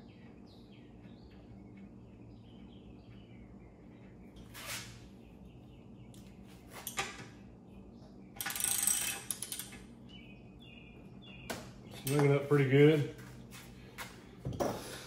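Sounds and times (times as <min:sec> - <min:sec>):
ratchet clicking rattle: 0:08.4 - 0:09.8.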